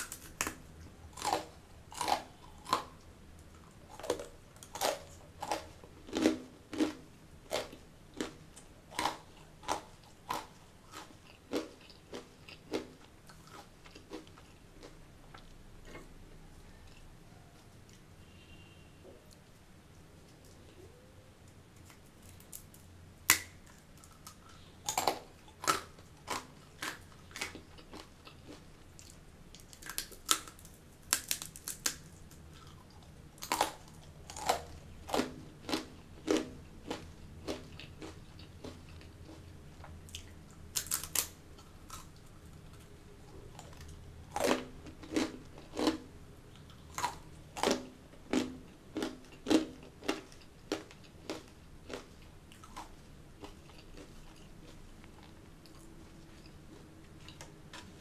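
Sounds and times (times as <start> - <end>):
person chewing crunchy snack: 0.0 - 18.0, 21.8 - 58.0.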